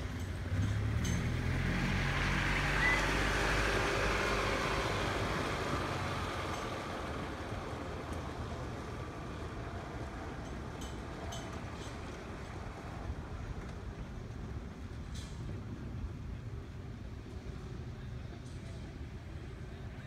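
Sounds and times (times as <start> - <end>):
rain: 0.0 - 15.4
wind: 0.0 - 20.0.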